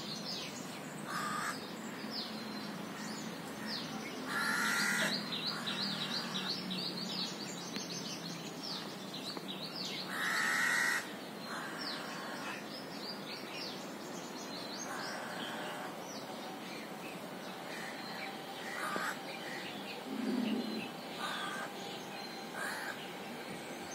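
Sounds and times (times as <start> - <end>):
small birds chirping: 0.0 - 23.9
crows cawing: 1.1 - 1.6, 4.3 - 5.6, 10.1 - 12.6, 14.9 - 15.9, 17.7 - 21.7, 22.6 - 23.0.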